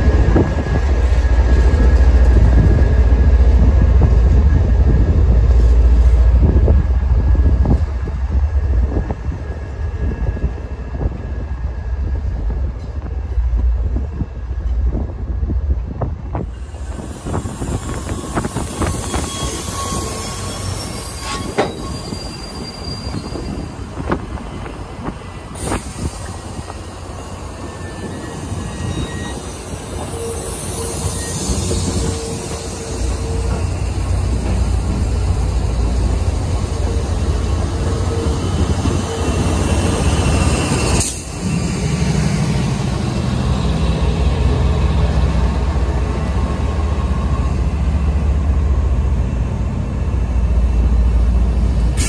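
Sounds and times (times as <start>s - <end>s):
diesel locomotive rumble: 0.0s - 52.0s
wheel squeal: 17.5s - 23.9s, 25.6s - 33.8s
wheel-on-rail hiss: 25.5s - 26.8s.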